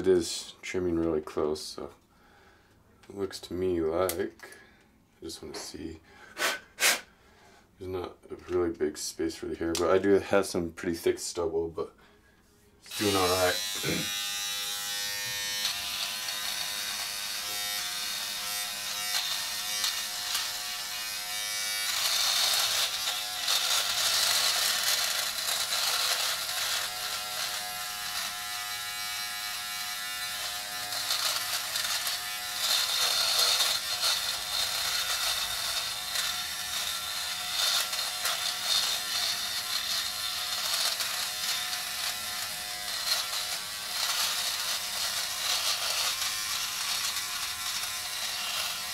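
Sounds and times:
face trimmer buzzing: 0:12.9 - 0:48.9.

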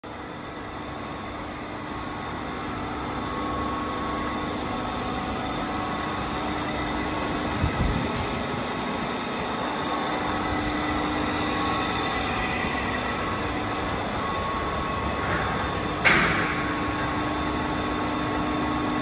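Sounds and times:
grinder humming with whining tones: 0:00.8 - 0:16.0.

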